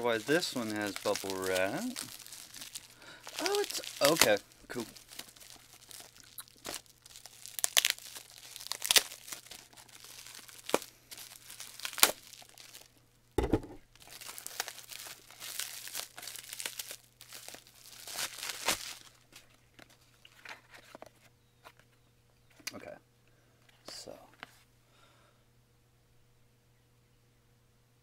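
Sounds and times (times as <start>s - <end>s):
bubble wrap crinkling and tearing: 0.0s - 13.0s, 13.9s - 21.1s
dull thump: 13.4s - 13.8s.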